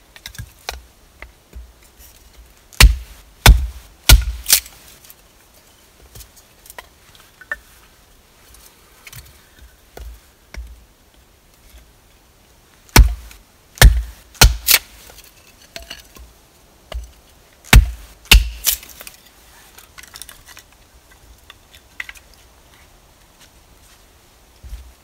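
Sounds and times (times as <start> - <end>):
hatchet chopping wood: 2.8 - 4.7, 12.9 - 14.9, 17.7 - 18.8
split wood pieces clicking: 18.3 - 19.2.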